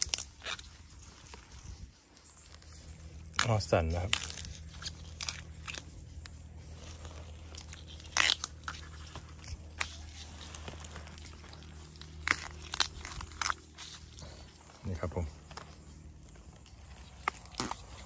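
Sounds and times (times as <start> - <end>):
bamboo shoots snapping: 0.0 - 1.6, 2.4 - 14.2, 15.4 - 18.0
dry leaves crackling and crunching: 0.0 - 18.0.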